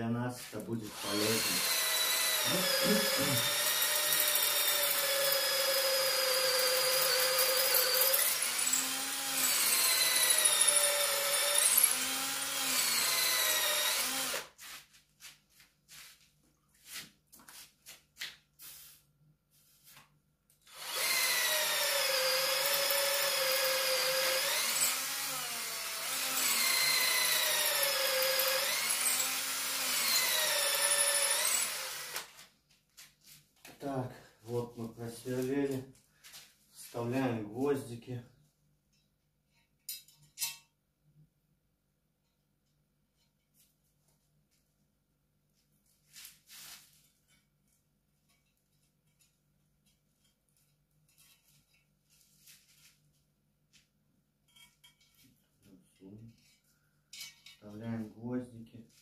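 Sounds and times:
electric drill whining: 0:00.9 - 0:14.5, 0:20.6 - 0:32.4.

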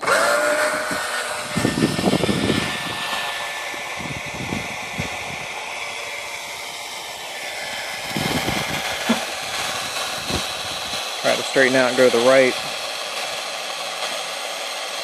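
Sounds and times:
cordless drill whining: 0:00.0 - 0:11.0
low rumbling bursts: 0:00.4 - 0:14.6.

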